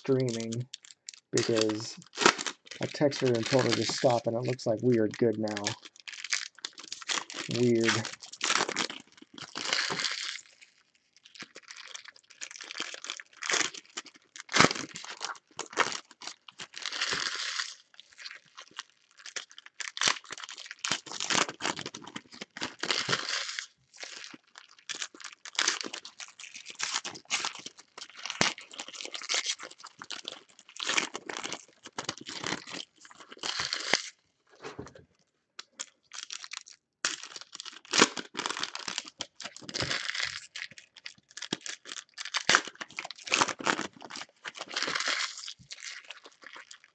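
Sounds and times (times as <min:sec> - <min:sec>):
foil wrappers crinkling and tearing: 0:00.0 - 0:34.2, 0:35.6 - 0:46.9.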